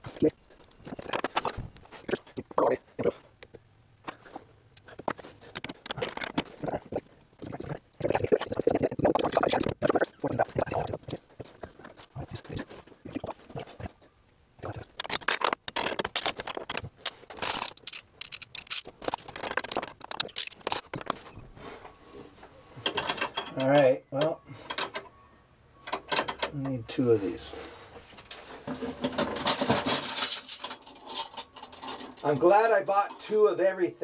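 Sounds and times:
metal tools clinking and scraping: 15.0s - 33.4s.

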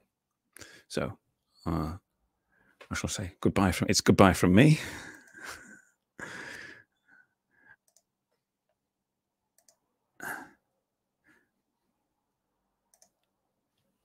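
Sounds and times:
faint soft clicks: 12.9s - 13.9s.

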